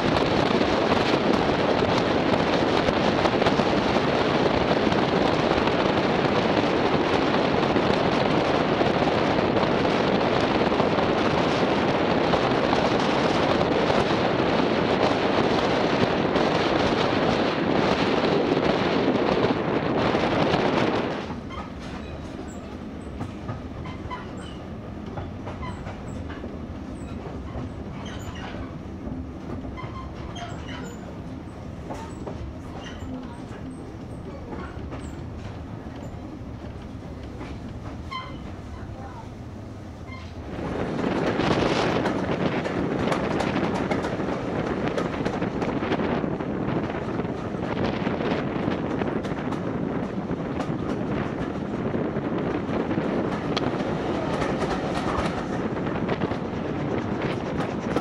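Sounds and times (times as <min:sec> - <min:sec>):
train rumbling on rails: 0:00.0 - 0:58.0
faint rail clicks: 0:53.2 - 0:58.0.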